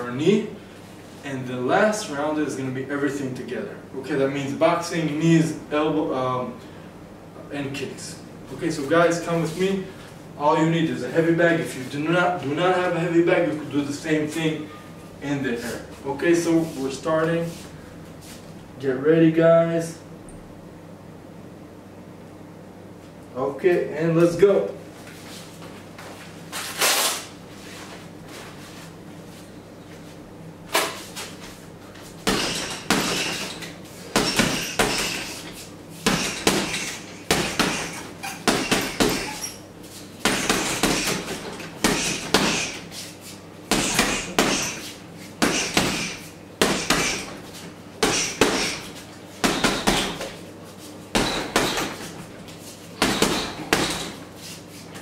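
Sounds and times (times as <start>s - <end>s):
boxing gloves punching heavy bag: 32.2s - 39.6s, 40.2s - 42.9s, 43.7s - 47.4s, 48.0s - 50.4s, 51.1s - 52.2s, 53.0s - 54.2s.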